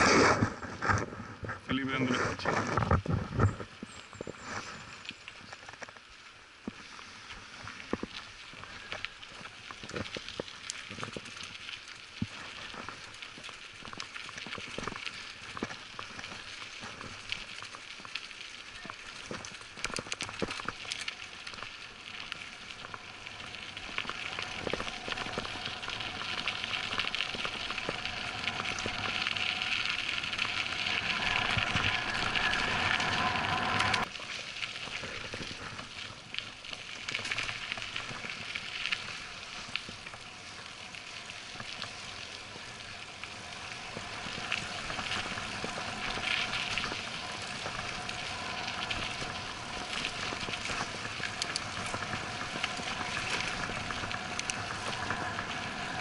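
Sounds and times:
bike tyres crunching on gravel: 0.0 - 56.0
bike clicks and rattles: 43.8 - 56.0.

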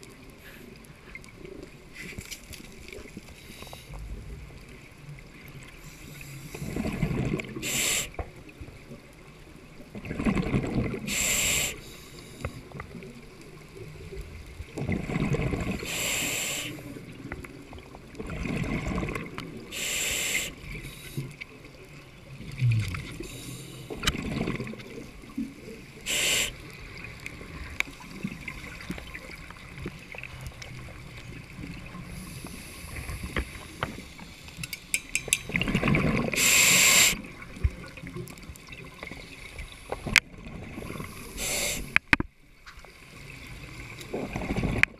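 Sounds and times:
exhaled bubbles through regulator: 6.6 - 8.0, 10.0 - 11.7, 14.2 - 20.8, 22.3 - 30.0, 35.5 - 39.2, 44.0 - 44.9
low underwater rumbling: 12.6 - 15.8, 20.6 - 34.3, 35.5 - 36.4.

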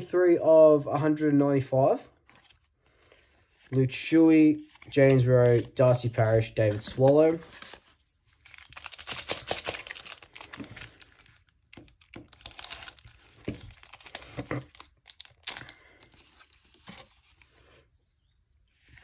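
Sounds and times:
foil wrapper tearing and crinkling: 8.4 - 16.0.

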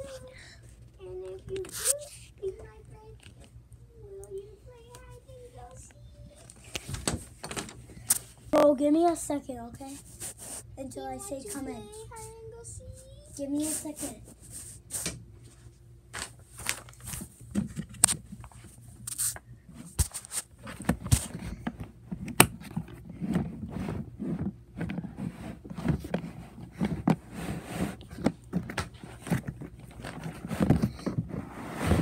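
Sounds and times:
clicks scrapes and rustling of handling: 16.2 - 31.4.

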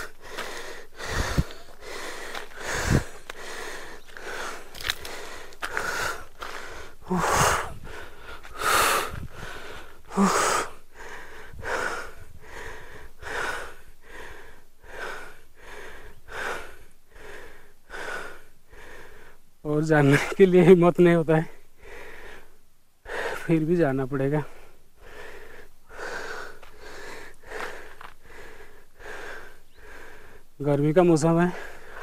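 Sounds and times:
loud gasps: 0.0 - 19.4
person breathing hard: 0.0 - 19.5, 21.5 - 23.5, 24.4 - 30.6, 31.4 - 32.0.

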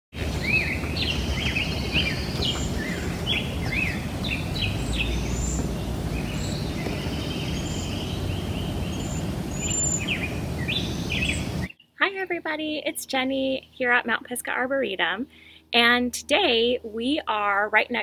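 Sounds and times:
birds chirping: 0.1 - 12.0
steady low rumble: 0.2 - 12.6.

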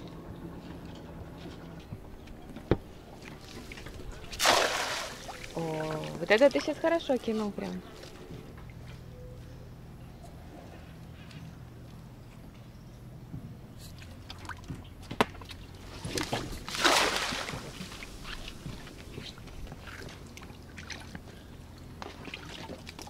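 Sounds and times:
water drips and sloshes: 3.2 - 9.0, 14.0 - 23.0
net splashing into water: 3.4 - 6.2, 16.2 - 18.6.

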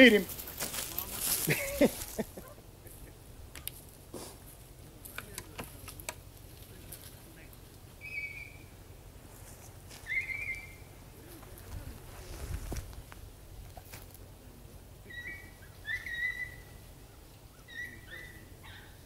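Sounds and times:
high whistled bird calls: 8.0 - 8.7, 10.0 - 10.9, 15.0 - 19.0.

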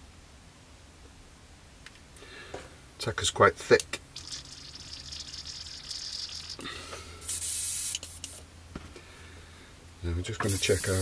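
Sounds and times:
airbrush hissing: 7.2 - 8.4, 10.4 - 11.0
airbrush spray burst: 7.2 - 8.4, 10.4 - 11.0.

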